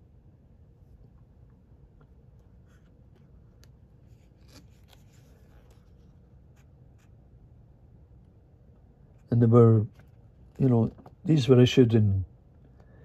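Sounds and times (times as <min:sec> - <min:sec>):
low room hum: 0:00.0 - 0:13.0
book page rustles: 0:02.5 - 0:07.2.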